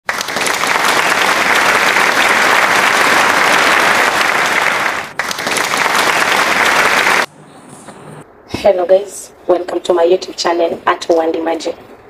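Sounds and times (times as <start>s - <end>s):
crowd applause: 0.0s - 7.3s.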